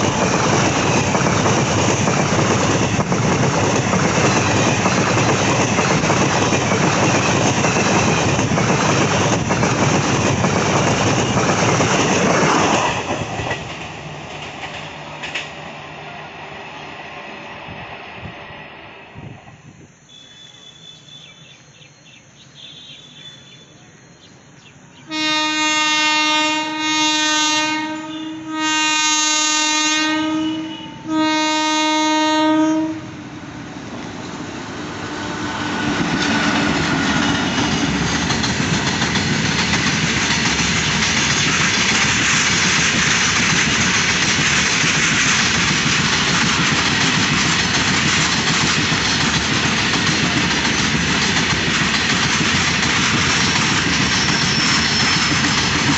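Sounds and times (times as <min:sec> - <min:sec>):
train wheels clattering on rails: 0:00.0 - 0:15.9, 0:35.4 - 0:55.9
locomotive horn blasts: 0:25.1 - 0:33.2.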